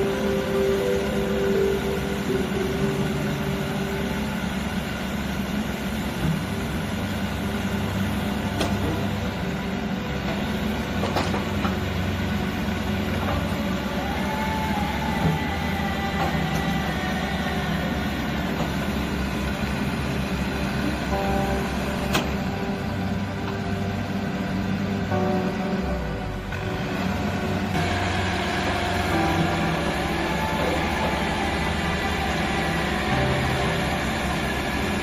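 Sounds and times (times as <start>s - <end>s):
faint whine: 0.0s - 26.5s
excavator running under load: 0.0s - 35.0s.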